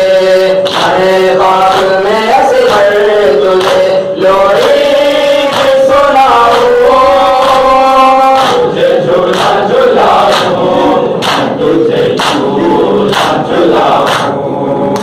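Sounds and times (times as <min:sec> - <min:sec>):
men chanting in unison: 0:00.0 - 0:15.0
rhythmic chest-beating slaps: 0:00.0 - 0:15.0.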